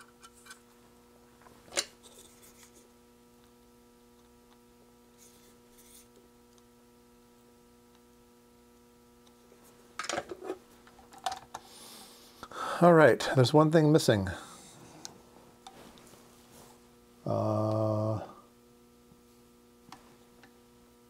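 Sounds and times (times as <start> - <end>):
faint electrical hum: 0.0 - 21.0
scraping and rustling of parts: 1.6 - 2.8.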